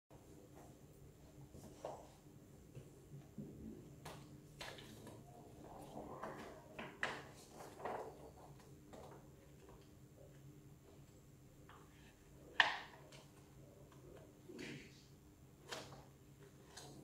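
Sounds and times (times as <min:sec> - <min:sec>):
paper and plastic rustles and clicks: 0:04.0 - 0:10.0.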